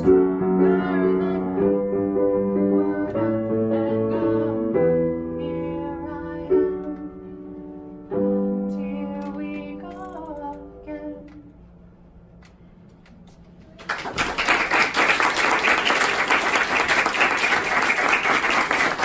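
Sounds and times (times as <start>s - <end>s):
audience applauding: 13.7s - 19.0s.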